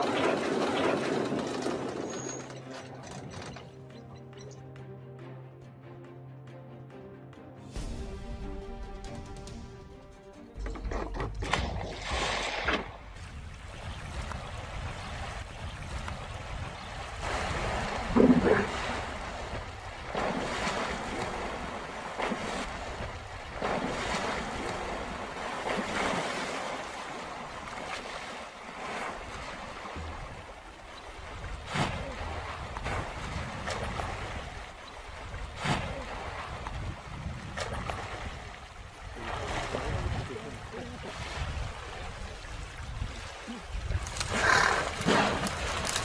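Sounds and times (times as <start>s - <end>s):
water splashing and churning: 0.0s - 3.9s, 10.5s - 46.0s
wind buffeting microphone: 13.0s - 21.6s, 29.3s - 46.0s.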